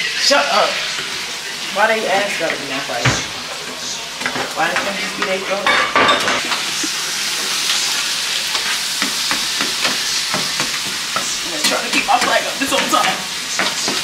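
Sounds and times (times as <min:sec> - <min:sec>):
food sizzling in frying pan: 0:00.0 - 0:14.0.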